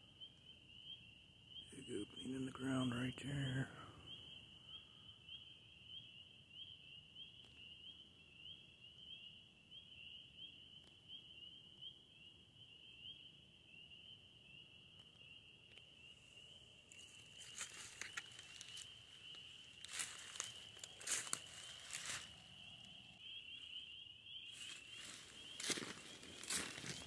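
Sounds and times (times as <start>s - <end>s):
frogs peeping: 0.0s - 27.0s
footsteps crunching dry leaves: 16.9s - 23.1s, 24.5s - 27.0s.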